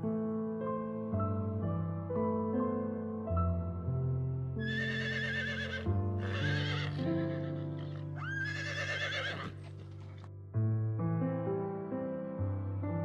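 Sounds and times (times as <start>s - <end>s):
background music: 0.1s - 13.0s
horse whinnying: 4.6s - 10.2s.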